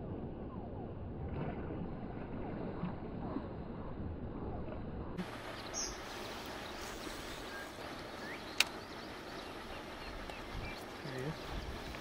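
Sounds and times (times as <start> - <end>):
outdoor background hiss: 5.2 - 12.0
sharp click: 8.6 - 8.8.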